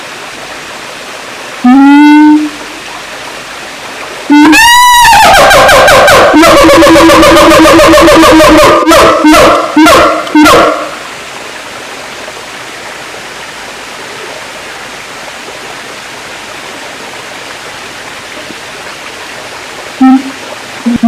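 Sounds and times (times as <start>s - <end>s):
ape's loud call: 4.3s - 10.8s.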